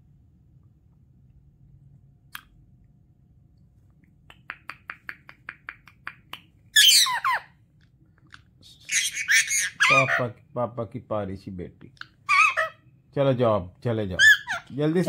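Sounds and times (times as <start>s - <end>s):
parakeet sharp clicks: 4.2s - 6.5s
harsh parakeet squawks: 6.8s - 7.6s, 8.9s - 10.3s, 12.0s - 12.8s, 14.2s - 14.7s.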